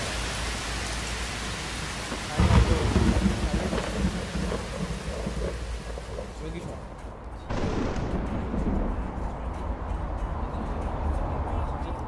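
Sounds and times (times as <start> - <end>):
heavy rain: 0.0 - 9.9
thunderclap and rumble: 2.1 - 9.6.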